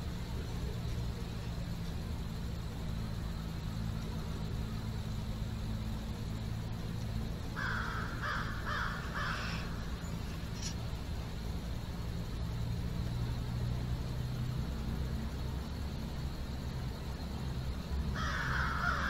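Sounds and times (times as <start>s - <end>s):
steady low rumble: 0.0s - 19.0s
crow cawing: 7.6s - 9.9s, 18.2s - 19.0s.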